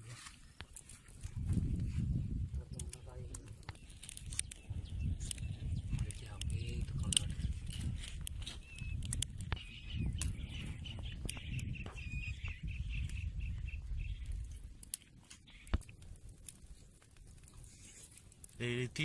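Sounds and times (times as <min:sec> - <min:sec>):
wood fire crackling: 0:00.0 - 0:19.0
birds chirping: 0:02.6 - 0:16.0.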